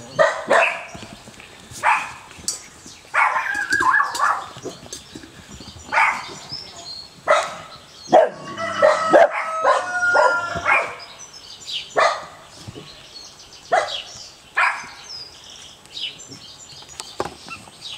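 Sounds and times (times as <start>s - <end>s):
puppies yipping and whining: 3.2s - 4.8s.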